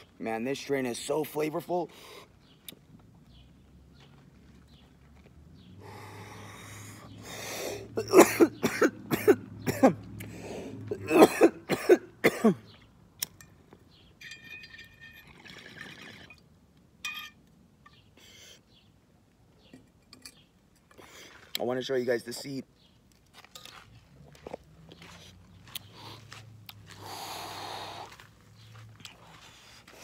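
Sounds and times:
man coughing: 7.9s - 10.0s, 10.9s - 12.7s
breathy rush: 25.9s - 28.2s.

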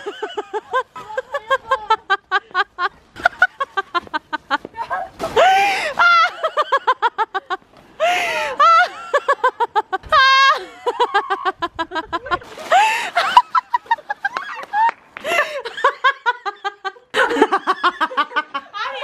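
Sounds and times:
woman laughing hard: 0.0s - 19.0s.

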